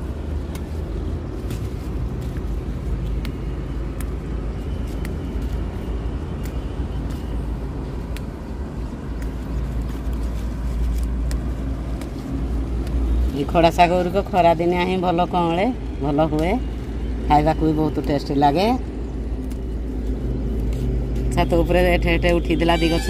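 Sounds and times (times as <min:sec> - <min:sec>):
plant stems snapping: 0:00.0 - 0:14.1, 0:19.3 - 0:21.3
leaves rustling: 0:00.0 - 0:17.2, 0:17.8 - 0:23.0
steady low rumble: 0:00.0 - 0:22.6.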